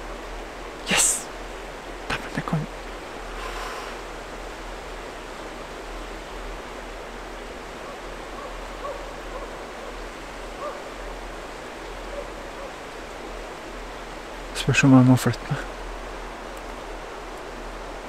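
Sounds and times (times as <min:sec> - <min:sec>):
dog baying in distance: 0:07.9 - 0:09.6, 0:10.6 - 0:10.9.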